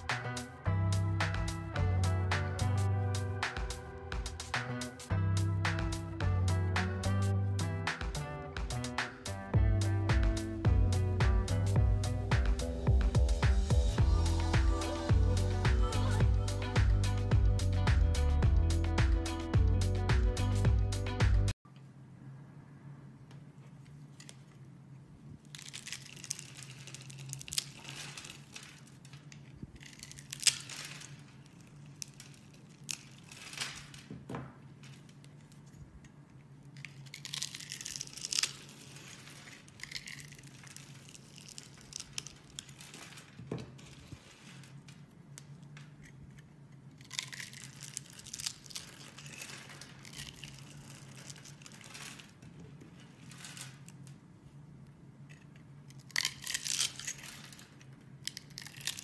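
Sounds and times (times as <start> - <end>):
blade crunching through soap: 36.8 - 42.7, 46.0 - 51.9, 55.9 - 57.6, 58.2 - 59.0.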